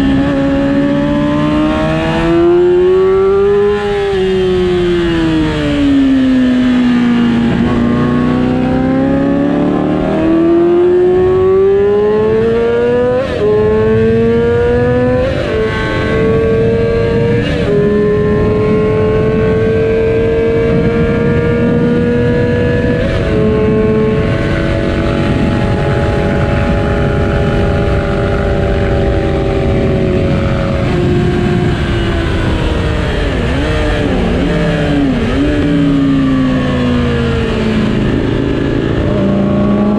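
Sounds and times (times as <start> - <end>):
motorcycle engine revving: 0.0 - 39.9
steady rushing noise: 13.1 - 39.9.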